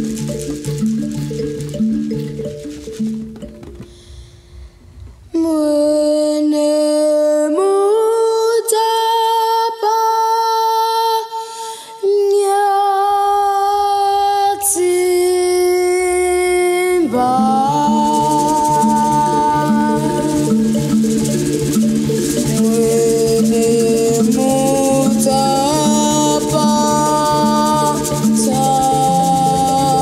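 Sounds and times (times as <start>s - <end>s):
steady rhythmic beat: 0.0s - 3.9s, 17.5s - 30.0s
low accompaniment: 17.1s - 30.0s.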